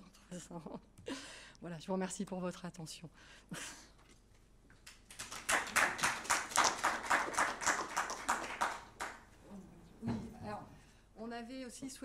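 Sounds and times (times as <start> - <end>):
audience applauding: 5.1 - 9.4.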